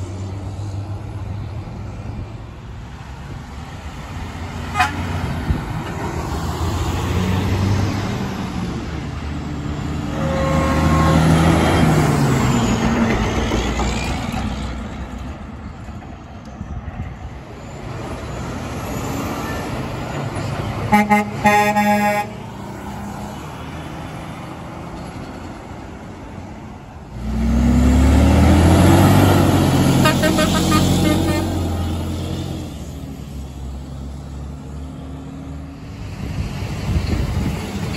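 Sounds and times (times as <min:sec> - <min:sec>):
diesel trucks passing: 0:00.0 - 0:37.9
truck engine pulling away: 0:03.1 - 0:15.4, 0:22.5 - 0:37.9
truck air horn blasts: 0:04.7 - 0:05.1, 0:10.1 - 0:11.8, 0:20.9 - 0:22.4, 0:30.0 - 0:31.6.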